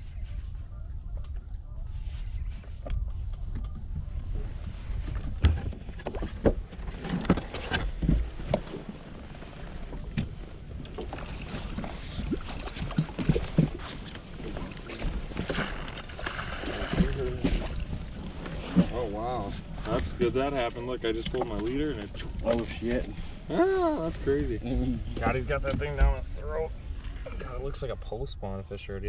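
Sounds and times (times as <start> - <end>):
water lapping against boat hull: 0.0 - 27.9
wind buffeting microphone: 0.0 - 29.0
knocks and clicks from boat: 2.8 - 4.2, 4.8 - 23.4, 24.6 - 26.4.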